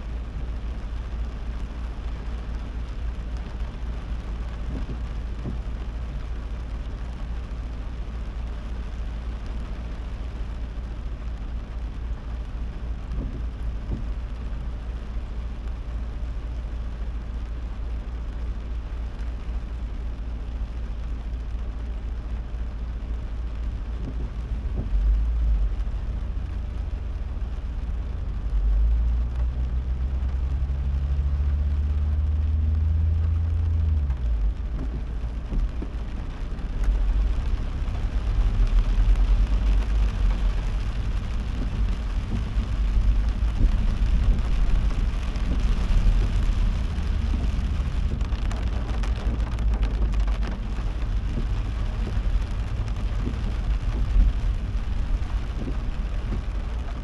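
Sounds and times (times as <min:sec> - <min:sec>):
car engine and road rumble: 0:00.0 - 0:57.0
deeper engine hum: 0:00.0 - 0:57.0
rain hissing: 0:00.0 - 0:57.0.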